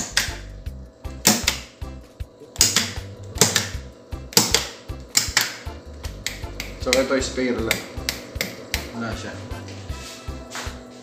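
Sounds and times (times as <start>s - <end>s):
rotary switches clicking: 0.0s - 0.5s, 1.2s - 1.8s, 2.6s - 8.9s
fan contactors switching: 0.0s - 9.9s.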